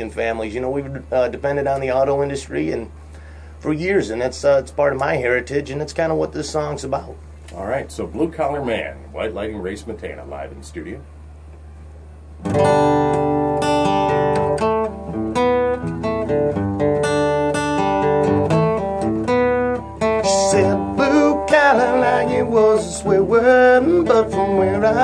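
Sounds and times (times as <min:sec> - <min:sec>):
acoustic guitar strummed chords: 0:12.4 - 0:25.0.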